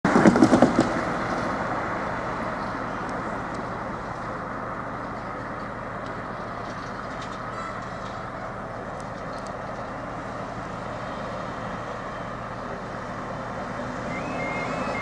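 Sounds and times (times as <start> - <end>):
road noise hiss: 0.1 - 15.0
loud vehicle passing close: 10.7 - 15.0.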